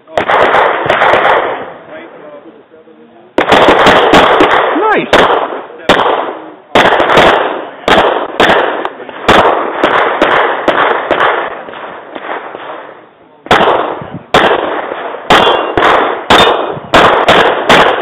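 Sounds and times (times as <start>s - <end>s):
handgun shots echoing: 13.5s - 18.0s.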